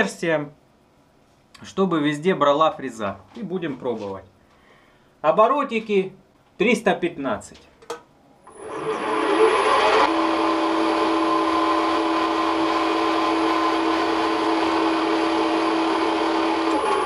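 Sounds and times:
milling machine gear whine: 8.4s - 17.0s.

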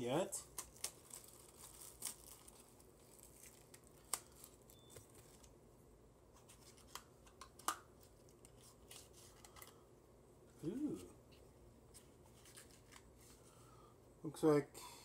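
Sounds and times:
sharp packaging clicks: 0.4s - 5.5s
packaging rustling: 0.5s - 5.5s, 11.9s - 13.5s.

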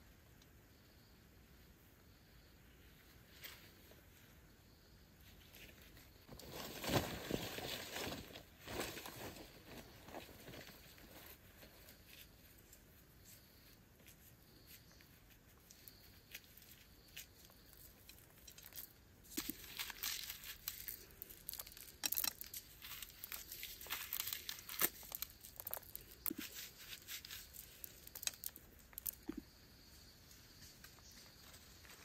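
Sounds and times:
corn kernels crackling onto ground: 15.6s - 29.6s.

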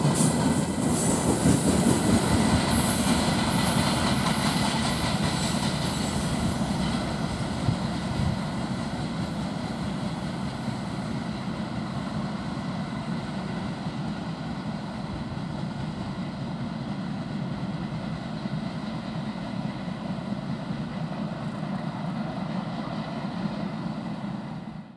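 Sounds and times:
freight train wagons rumbling: 0.0s - 24.9s.

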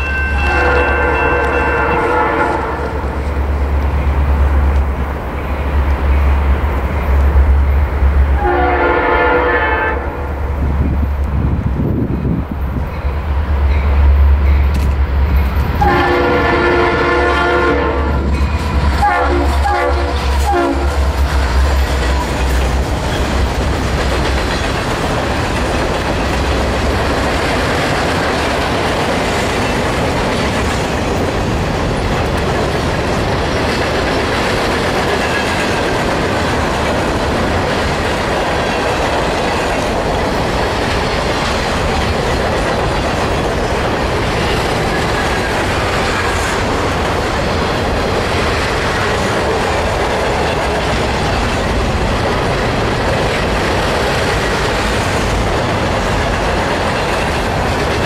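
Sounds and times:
diesel locomotive engine rumbling: 0.0s - 58.0s
train horn blasts: 0.1s - 3.2s, 8.4s - 10.3s, 15.8s - 21.1s
train wheels clacking on rails: 10.6s - 58.0s.

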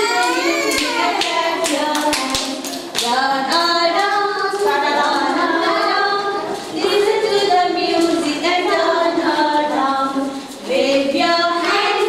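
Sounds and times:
hand claps: 0.0s - 4.2s
children singing together: 0.0s - 12.0s.

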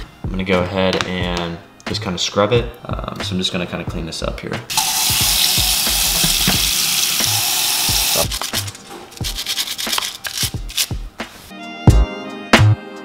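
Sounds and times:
tap running into metal sink: 4.7s - 8.2s
scrubbing: 4.7s - 10.9s
metal parts clicking: 8.2s - 10.9s.

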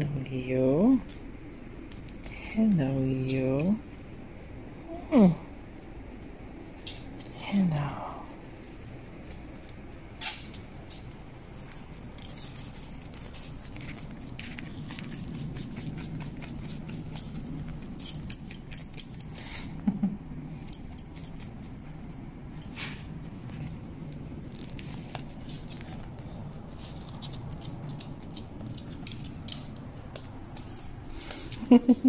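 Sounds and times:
low steady hum: 0.0s - 32.0s
collar tag jingling: 11.4s - 19.9s, 20.6s - 23.3s.

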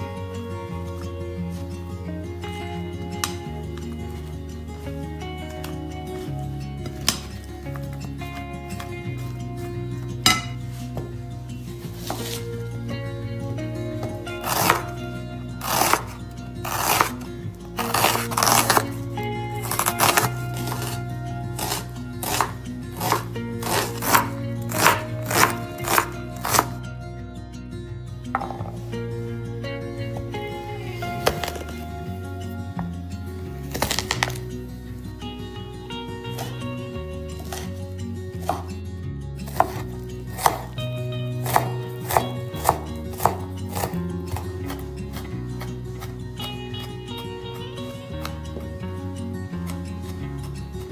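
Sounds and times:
background music: 0.0s - 50.9s
knife chopping onion on wooden board: 14.0s - 15.0s, 15.6s - 18.9s, 19.6s - 21.0s, 21.6s - 26.8s, 37.4s - 37.7s, 38.4s - 38.8s, 39.4s - 47.0s.

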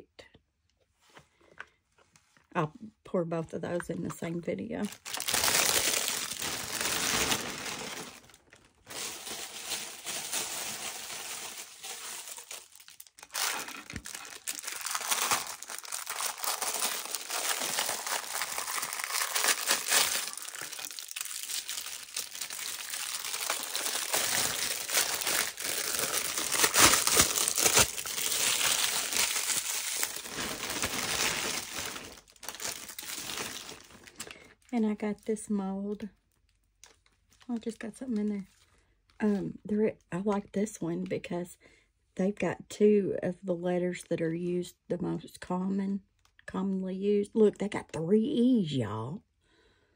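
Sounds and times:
plastic packaging crinkling: 4.8s - 34.7s, 35.9s - 37.8s.

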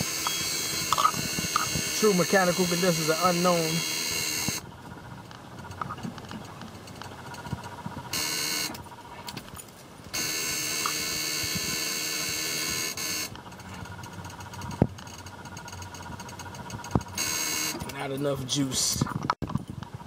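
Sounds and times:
cab warning buzzer: 0.0s - 4.7s, 8.1s - 8.8s, 10.1s - 18.0s.

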